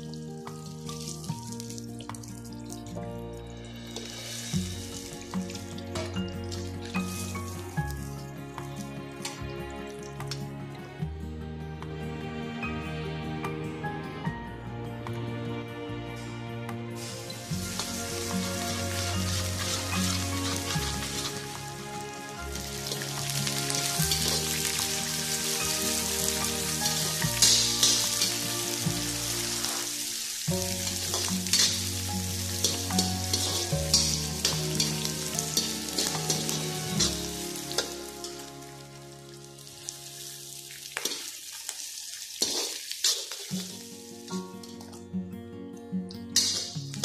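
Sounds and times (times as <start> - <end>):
vegetables sizzling in hot oil: 0.0 - 3.0, 3.6 - 9.4, 17.0 - 45.0, 46.4 - 47.0
background music: 0.0 - 41.5, 43.5 - 47.0
spatula scraping a wok: 26.9 - 28.4, 30.9 - 38.5, 42.4 - 43.8.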